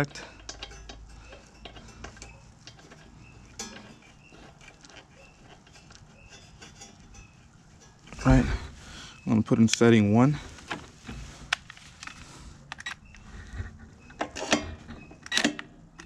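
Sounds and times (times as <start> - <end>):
small metallic clicks and ticks: 0.0 - 8.3, 9.5 - 10.8.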